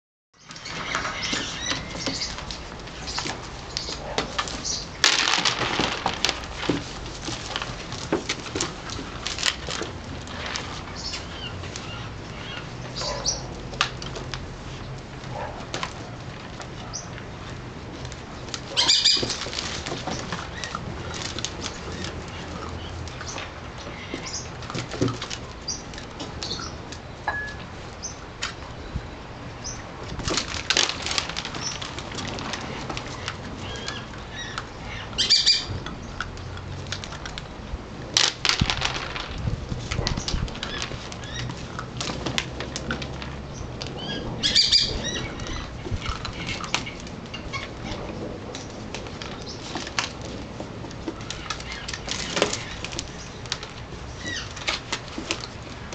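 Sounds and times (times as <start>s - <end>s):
puppy claws clicking on plastic: 35.7s - 44.0s.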